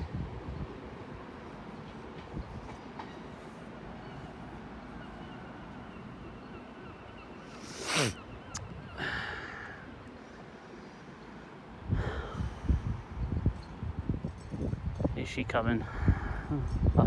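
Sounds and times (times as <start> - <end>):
station background noise: 0.0 - 11.9
gulls calling: 2.6 - 11.7.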